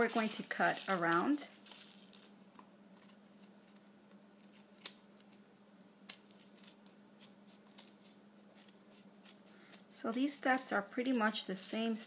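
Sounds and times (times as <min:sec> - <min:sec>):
faint steady hum: 0:00.0 - 0:12.0
scissors snipping: 0:04.4 - 0:05.4, 0:08.6 - 0:11.4.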